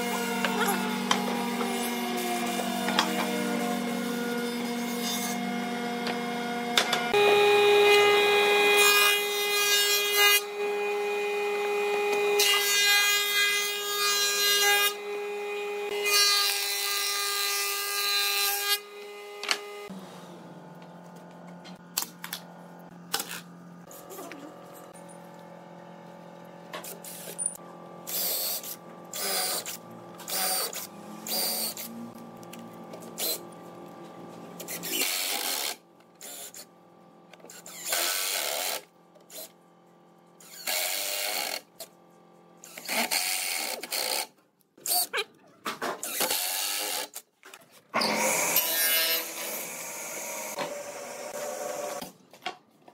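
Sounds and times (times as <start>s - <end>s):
low shop hum: 0.0s - 52.9s
woodworking machine running: 5.3s - 9.7s, 18.8s - 35.7s.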